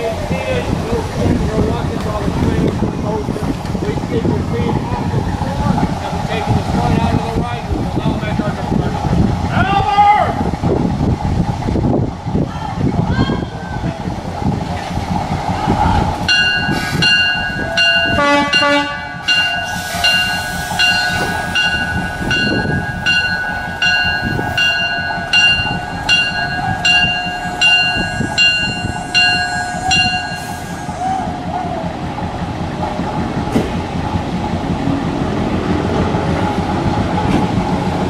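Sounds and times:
locomotive engine and train rumble: 0.0 - 38.0
locomotive bell ringing: 16.3 - 31.3
locomotive horn toot: 18.0 - 21.4.

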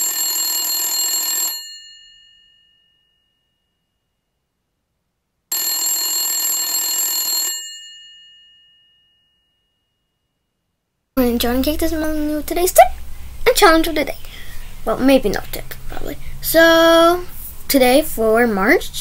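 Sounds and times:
bell ringing: 1.3 - 4.2, 7.3 - 10.5.

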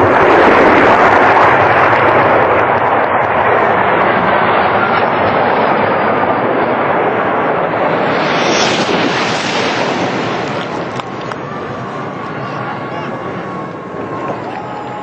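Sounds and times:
high-speed train roaring past: 6.1 - 15.0.

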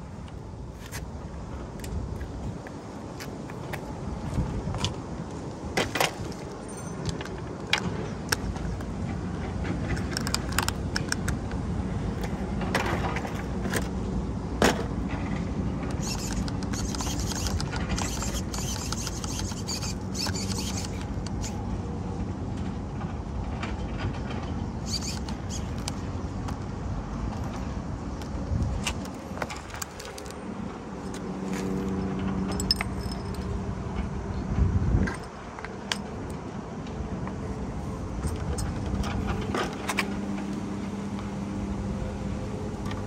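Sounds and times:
rattles and clicks: 4.7 - 14.0, 14.6 - 21.7, 27.3 - 34.1
small nitro engine running: 16.0 - 21.6, 24.8 - 25.7.

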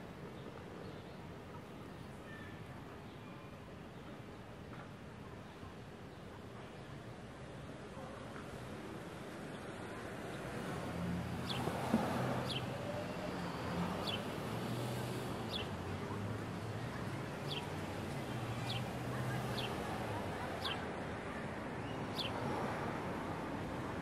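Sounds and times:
distant traffic: 9.2 - 24.0.

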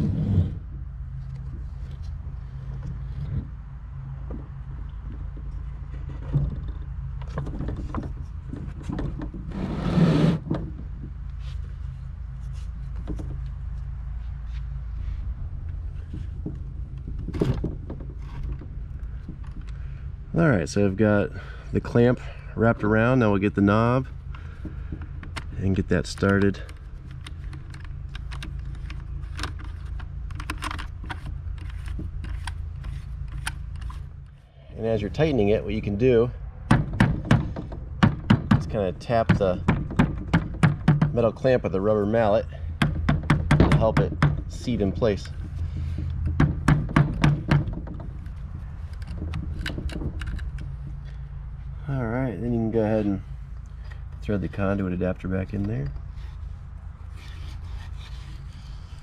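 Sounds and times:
scraping rub: 0.0 - 0.6, 8.6 - 10.5, 56.1 - 59.0
low hum: 0.0 - 59.0
plastic parts knocking and clicking: 5.1 - 9.5, 24.4 - 34.0, 36.7 - 41.3, 42.7 - 44.6, 45.2 - 50.8
metal clamp clicking and rattling: 47.8 - 50.7.

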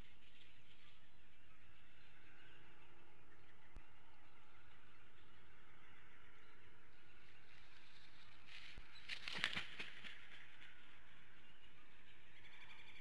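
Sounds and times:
faint outdoor background: 0.0 - 13.0
eagle wingbeat flaps: 8.5 - 10.7.

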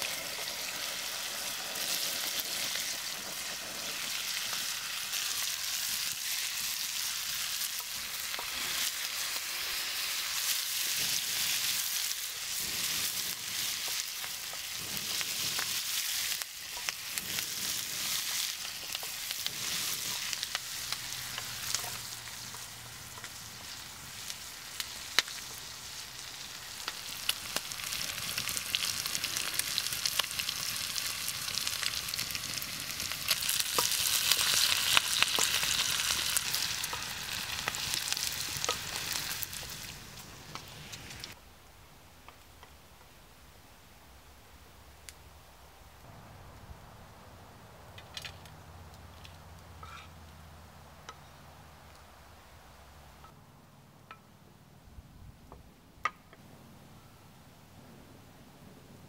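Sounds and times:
bacon and onion sizzling in pan: 0.0 - 41.4
wooden spatula scraping pan: 49.8 - 50.2.

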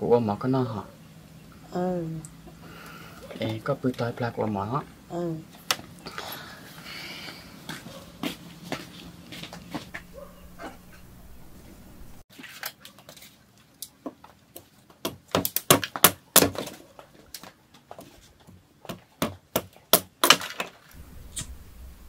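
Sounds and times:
machete chopping wood: 15.0 - 16.8, 18.9 - 20.7.

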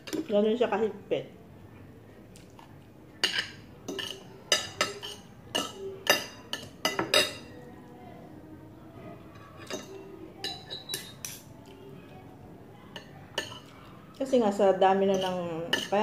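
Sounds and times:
cutlery clinking on a ceramic plate: 3.2 - 7.5, 9.6 - 11.5, 13.0 - 13.7, 15.1 - 16.0.

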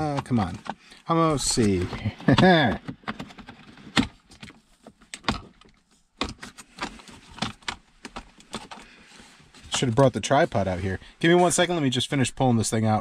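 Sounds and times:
plastic trim clicks and knocks: 5.1 - 8.8.

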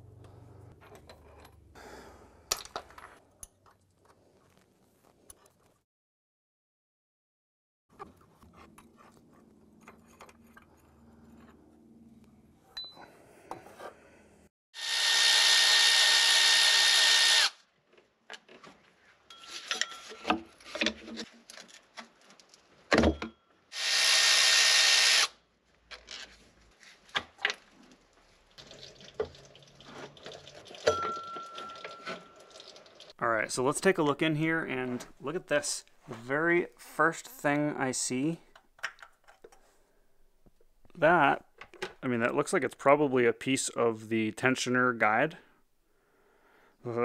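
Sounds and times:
electric ratchet whining: 14.8 - 17.6
tools and bolts clinking: 19.3 - 23.4, 30.7 - 32.6.

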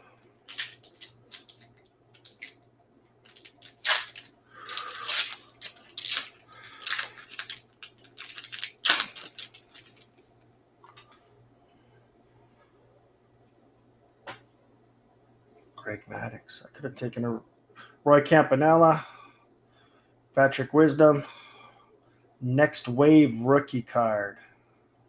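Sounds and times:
foil wrapper tearing and crinkling: 0.4 - 2.6, 3.2 - 10.1.

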